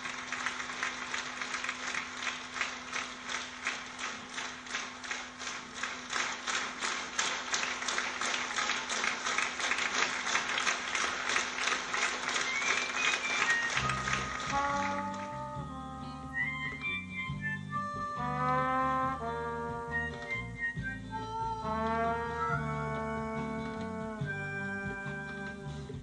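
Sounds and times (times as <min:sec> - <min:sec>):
audience clapping in unison: 0:00.0 - 0:15.5
faint steady hum: 0:00.0 - 0:18.5.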